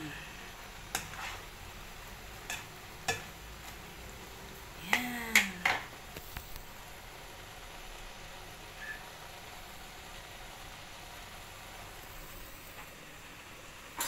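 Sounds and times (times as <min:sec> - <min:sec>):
steady low hiss: 0:00.0 - 0:14.0
spatula scraping a wok: 0:00.3 - 0:04.4.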